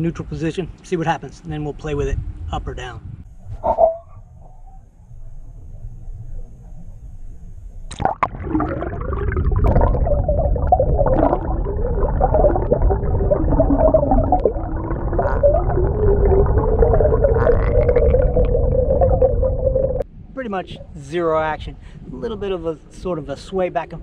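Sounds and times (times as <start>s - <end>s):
boat motor whine underwater: 4.8s - 20.0s
water rushing underwater: 7.9s - 20.0s.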